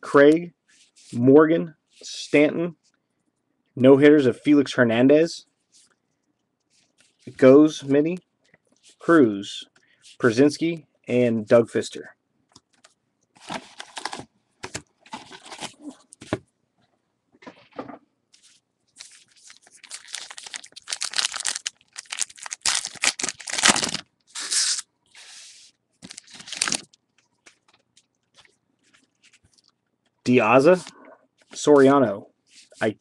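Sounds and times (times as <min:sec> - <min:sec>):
wrapper tearing and crinkling: 0:13.4 - 0:14.2, 0:19.0 - 0:24.9, 0:26.0 - 0:27.0
cards being handled: 0:18.4 - 0:29.6.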